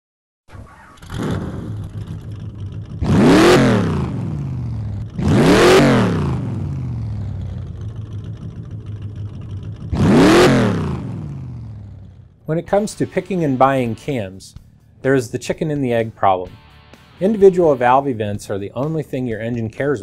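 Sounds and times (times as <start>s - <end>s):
car engine idling and revving: 0.5s - 15.1s.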